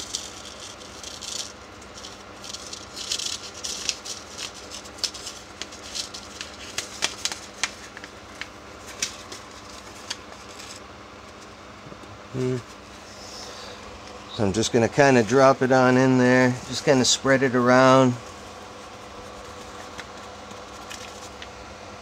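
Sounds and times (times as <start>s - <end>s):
paper packet crinkling and tearing: 0.0s - 10.8s, 17.8s - 21.6s.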